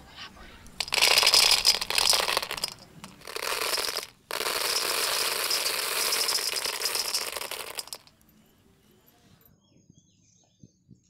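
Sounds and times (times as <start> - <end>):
popcorn kernels pouring into metal bowl: 0.8 - 8.2.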